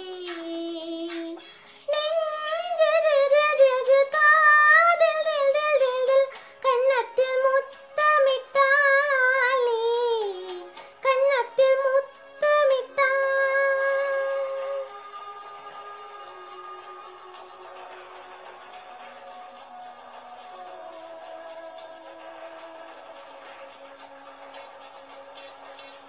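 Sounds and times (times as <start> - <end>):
girl singing with vibrato: 0.0 - 16.7.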